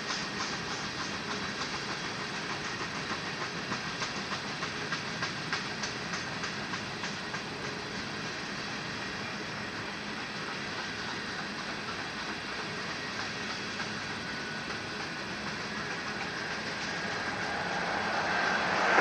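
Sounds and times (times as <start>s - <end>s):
train cars rolling on rails: 0.0s - 19.0s.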